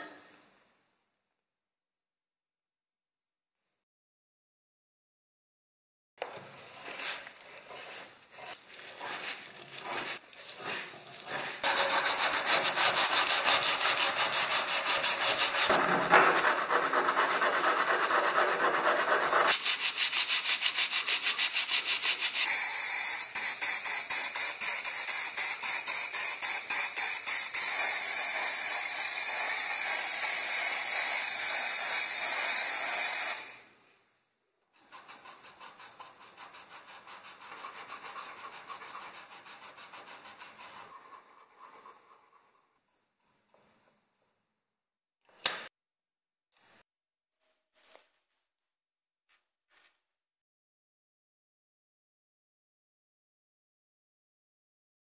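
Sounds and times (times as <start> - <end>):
sanding sponge rubbing: 6.7 - 22.6, 34.8 - 42.6
hand scrubbing steel wire: 6.8 - 22.5.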